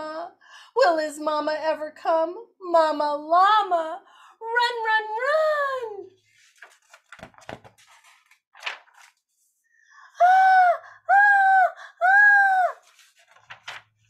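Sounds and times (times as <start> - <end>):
short breath: 4.1 - 4.4
woman crying out high: 10.2 - 12.8.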